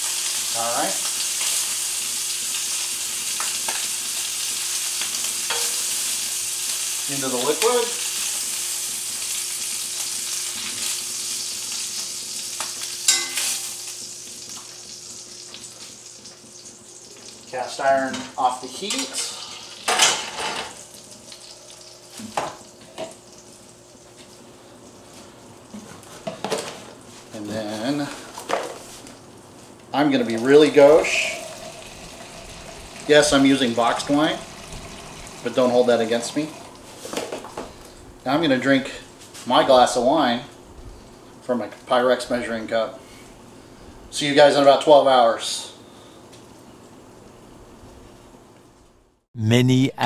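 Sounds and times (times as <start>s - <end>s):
meat sizzling in a skillet: 0.0s - 25.8s, 30.3s - 37.4s.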